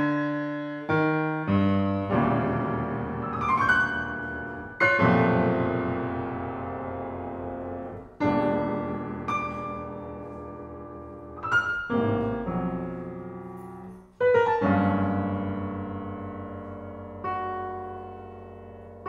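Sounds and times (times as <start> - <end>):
grand piano chords: 0.0 - 19.0.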